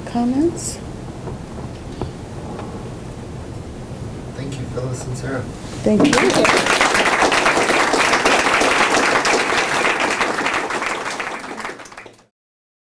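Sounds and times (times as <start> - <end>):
small audience applauding: 6.0 - 12.3.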